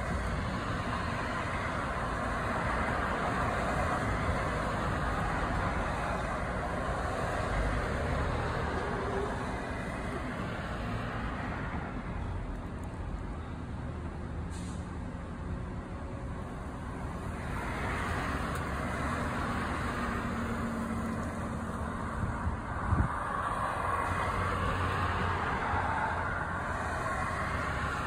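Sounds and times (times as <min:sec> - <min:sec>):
cars driving past: 0:00.0 - 0:28.0.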